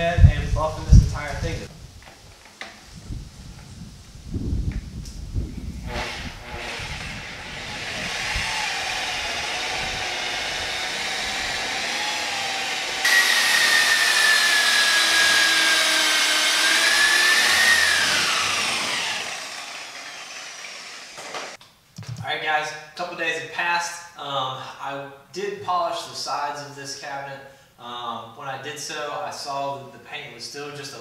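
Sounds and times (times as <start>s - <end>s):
electric polisher motor whine: 5.8s - 21.6s.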